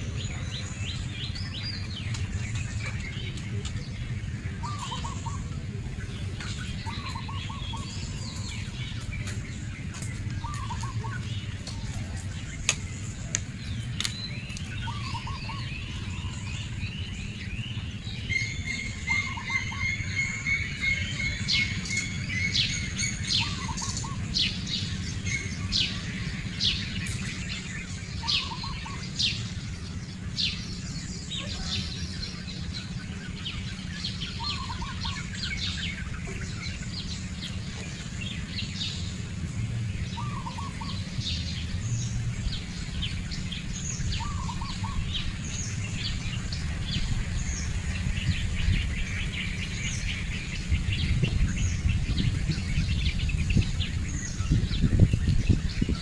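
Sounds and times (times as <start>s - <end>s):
birds chirping and calling: 0.0s - 56.0s
steady low hum: 0.0s - 56.0s.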